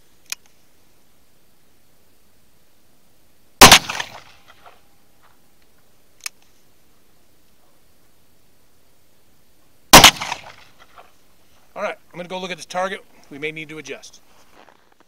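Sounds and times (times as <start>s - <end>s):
revolver gunshot with echo: 3.6s - 4.7s, 9.9s - 11.0s.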